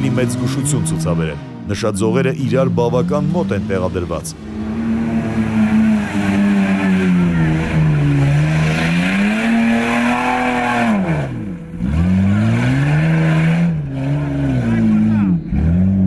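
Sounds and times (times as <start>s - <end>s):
engine revving hard: 0.0s - 16.0s.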